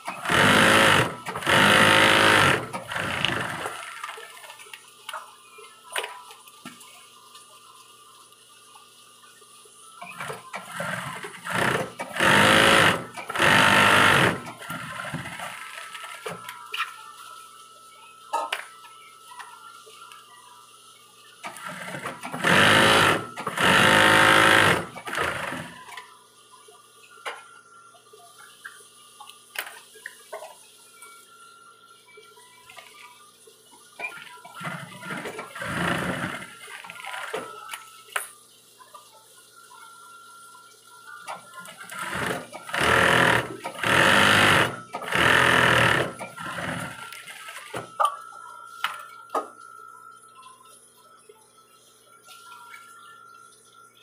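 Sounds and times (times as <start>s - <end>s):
sewing machine stitching: 0.0s - 4.1s, 10.1s - 16.2s, 21.5s - 25.8s, 34.6s - 36.5s, 41.8s - 47.2s.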